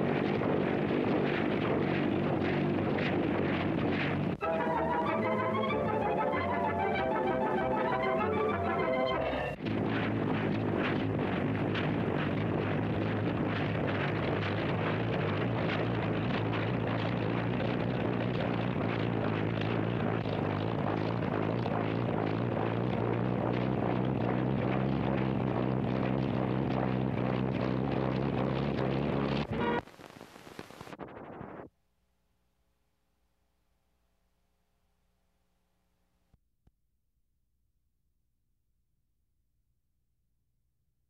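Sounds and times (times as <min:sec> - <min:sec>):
helicopter engine drone: 0:00.0 - 0:29.8.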